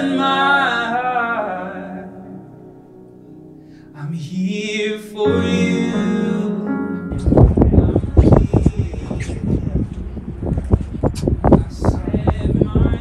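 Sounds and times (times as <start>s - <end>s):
person singing: 0.0s - 2.5s, 3.9s - 9.8s
background music: 0.0s - 8.2s.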